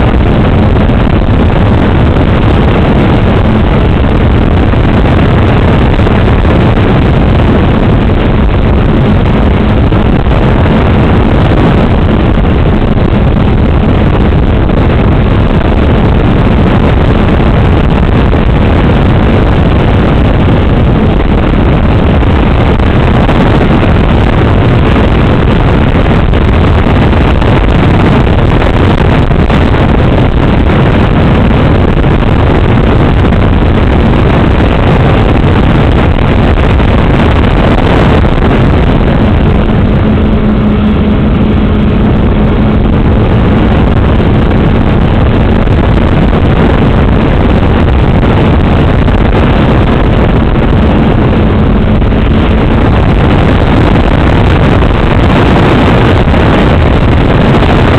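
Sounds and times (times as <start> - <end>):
steady low drone: 0.0 - 57.9
wind rush: 0.0 - 57.9.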